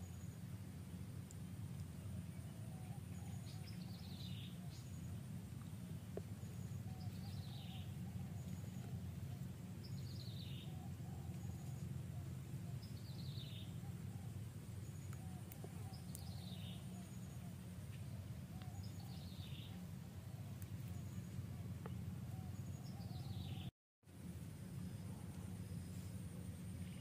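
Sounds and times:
steady low rumble: 0.0 - 27.0
faint bird chirps: 6.2 - 23.7.

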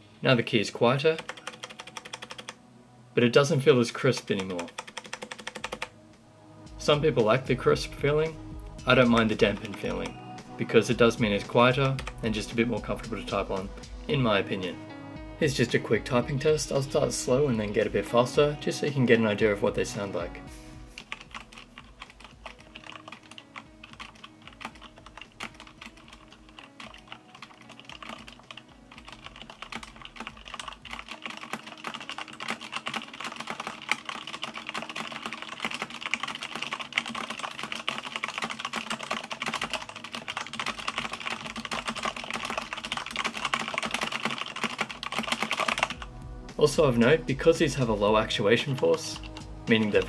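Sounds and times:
typing on mechanical keyboard: 1.0 - 2.6, 4.0 - 5.9, 8.9 - 10.2, 21.0 - 46.1, 48.7 - 50.0.

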